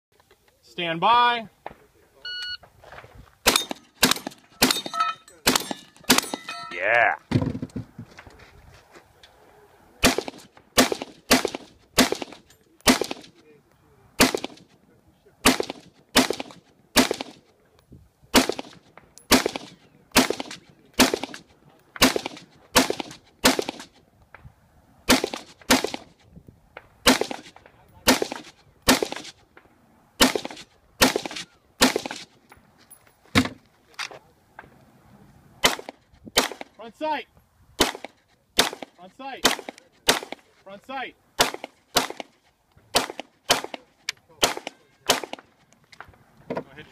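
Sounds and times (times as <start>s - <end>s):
pistol shots: 3.4s - 6.5s, 10.0s - 13.4s, 14.2s - 14.7s, 15.4s - 17.4s, 18.3s - 23.9s, 25.1s - 26.1s, 27.0s - 29.4s, 30.2s - 32.3s, 35.6s - 36.8s, 37.8s - 40.5s, 41.4s - 42.3s, 42.9s - 43.8s, 44.4s - 45.5s
rifle gunshots: 3.4s - 6.5s, 10.0s - 13.4s, 14.2s - 14.7s, 15.4s - 17.4s, 18.3s - 23.9s, 25.1s - 26.1s, 27.0s - 29.4s, 30.2s - 32.3s, 35.6s - 36.8s, 37.8s - 40.5s, 41.4s - 42.3s, 42.9s - 45.5s.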